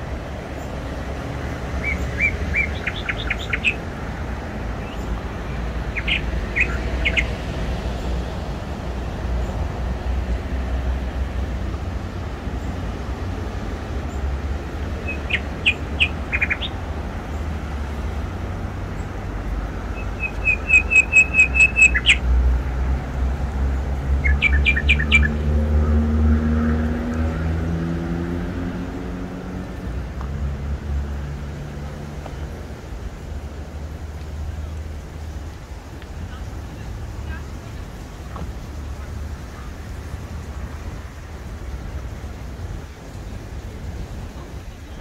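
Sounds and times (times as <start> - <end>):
small birds chirping: 1.8 - 3.9, 4.7 - 8.2, 14.0 - 18.0, 19.8 - 22.2, 23.6 - 25.4.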